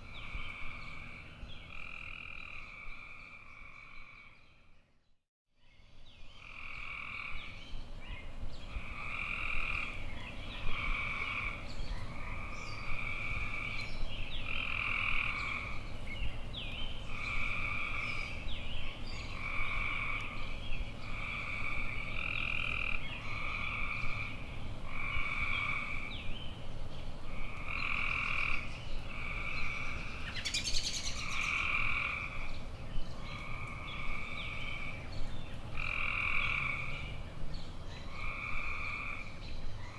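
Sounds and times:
frogs croaking in chorus: 0:00.0 - 0:04.5, 0:06.3 - 0:07.6, 0:08.7 - 0:15.9, 0:17.1 - 0:18.4, 0:19.2 - 0:26.2, 0:27.3 - 0:32.5, 0:33.2 - 0:35.1, 0:35.7 - 0:37.1, 0:38.0 - 0:39.9.

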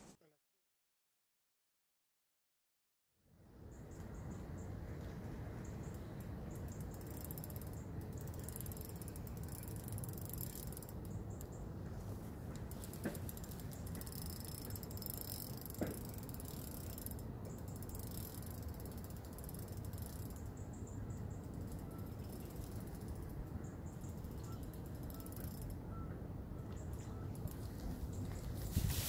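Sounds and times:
fishing reel ticking: 0:05.9 - 0:11.6, 0:12.5 - 0:25.8.

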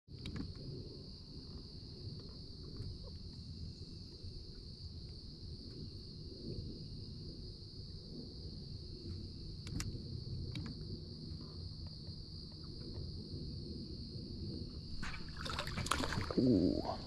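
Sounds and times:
faint ticks: 0:00.1 - 0:00.8, 0:09.0 - 0:13.1
insect chorus drone: 0:00.1 - 0:17.0
low rumbling noise: 0:00.1 - 0:17.0.

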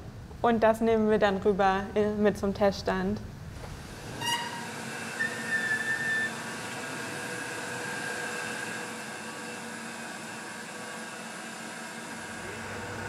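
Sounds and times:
lab equipment and ventilation hum: 0:00.0 - 0:13.0
short high squeak: 0:04.2 - 0:06.5.

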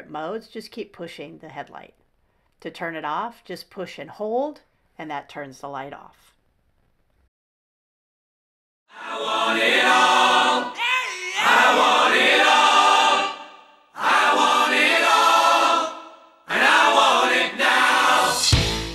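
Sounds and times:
choir chords: 0:08.9 - 0:18.9.

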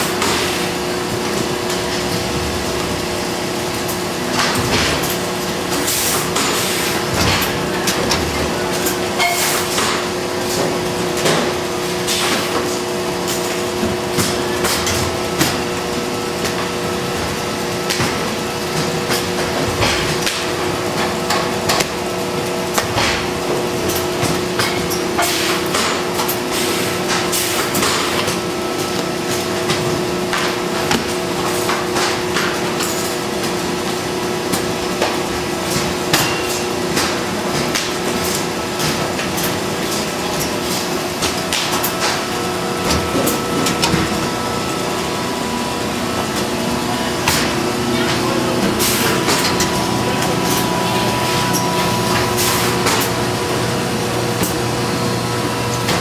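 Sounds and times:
hydraulic press humming: 0:00.0 - 0:56.0.

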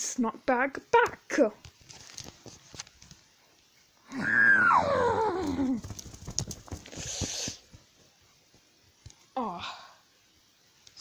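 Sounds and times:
plush toys rustling: 0:01.7 - 0:03.4, 0:05.0 - 0:08.7
child wailing: 0:04.1 - 0:05.8
breathy hiss: 0:06.7 - 0:07.9.

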